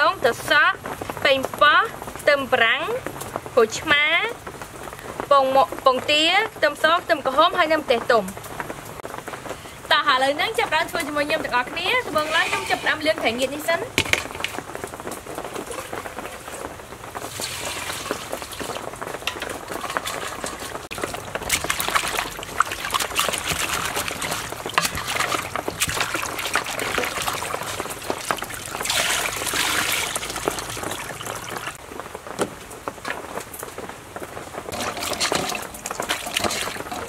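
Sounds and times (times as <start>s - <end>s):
water sloshing in a steel bowl: 12.0s - 13.4s, 15.5s - 16.6s, 17.3s - 31.8s, 34.7s - 37.0s.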